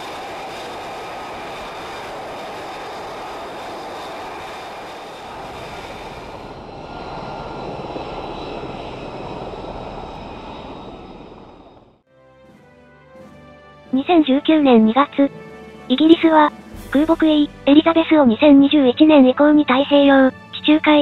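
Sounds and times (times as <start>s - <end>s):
jet engine roaring: 0.0s - 12.6s
deep aircraft noise: 0.0s - 21.0s.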